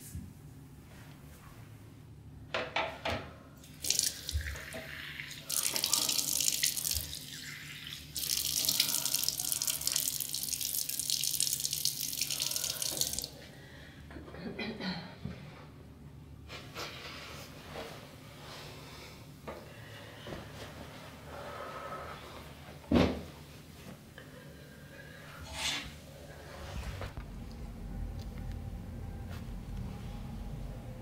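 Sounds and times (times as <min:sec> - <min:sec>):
tap water splashing in basin: 0:03.8 - 0:07.2.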